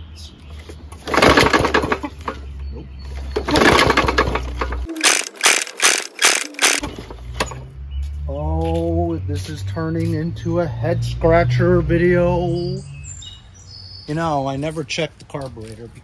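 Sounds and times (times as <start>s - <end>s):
recoil starter pulled: 3.5s - 7.0s
small engine cranking: 3.5s - 7.0s
quick sharp clacks: 4.9s - 6.9s.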